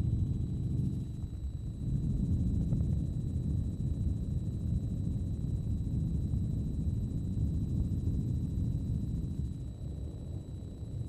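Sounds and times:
helicopter cabin rumble: 0.0s - 6.5s.

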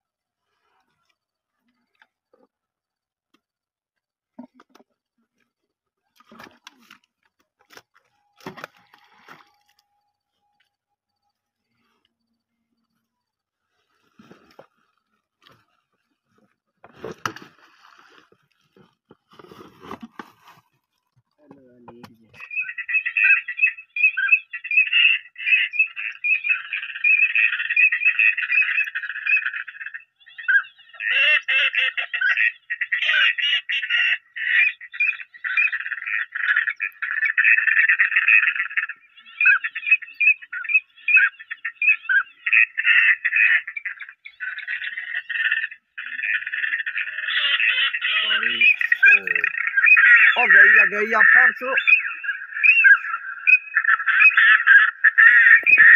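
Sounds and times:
water sloshing and splashing: 17.1s - 19.1s
ducks quacking: 31.0s - 55.9s.

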